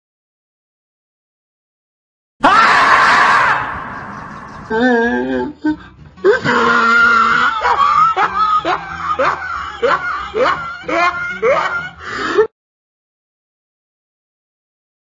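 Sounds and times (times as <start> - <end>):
person screaming: 2.4 - 5.6, 6.3 - 7.9.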